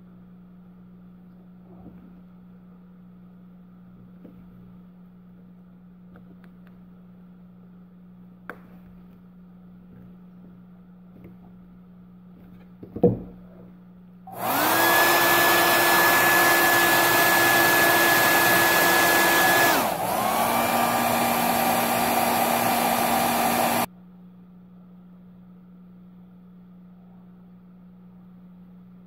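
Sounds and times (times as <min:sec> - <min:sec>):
hair dryer blowing with a whine: 0:14.3 - 0:23.9.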